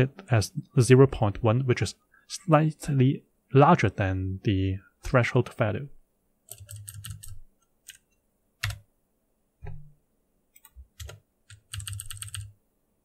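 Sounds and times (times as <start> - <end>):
computer keyboard typing: 6.5 - 8.8, 10.6 - 12.5.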